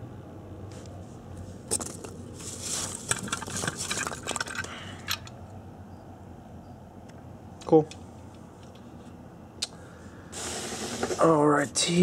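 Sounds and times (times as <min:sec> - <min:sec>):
foam packing peanuts rustling: 0:02.4 - 0:03.8.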